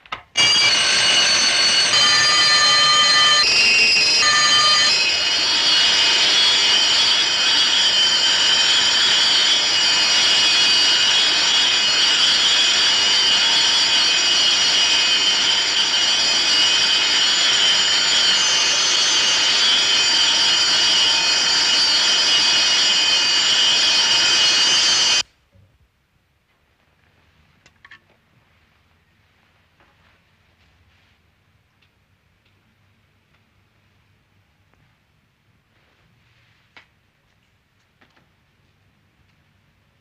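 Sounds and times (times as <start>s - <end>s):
electric alarm bell ringing: 0.4s - 25.2s.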